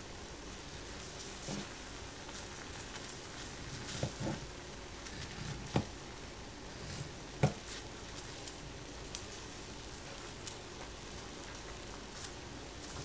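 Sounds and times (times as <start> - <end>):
steady low hiss: 0.0 - 13.0.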